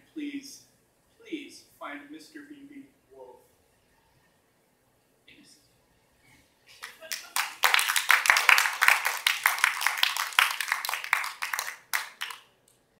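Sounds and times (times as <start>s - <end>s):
audience applauding: 6.8s - 12.5s.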